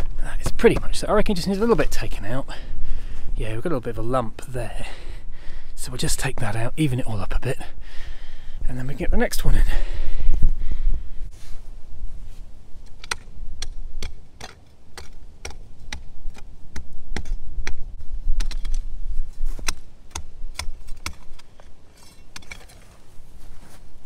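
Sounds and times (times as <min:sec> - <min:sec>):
scraping of loose soil: 0:11.3 - 0:13.3, 0:17.1 - 0:24.0
spade chopping into soil: 0:13.0 - 0:17.8, 0:18.4 - 0:18.8, 0:19.5 - 0:22.9.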